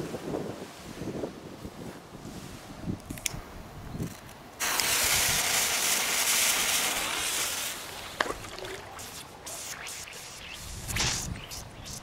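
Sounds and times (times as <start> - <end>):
firecracker fuse hissing: 4.6 - 12.0.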